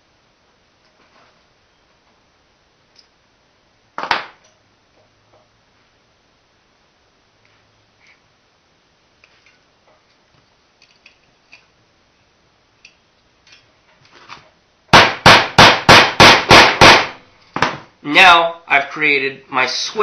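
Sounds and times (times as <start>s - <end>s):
hammer striking nail: 14.9s - 17.8s.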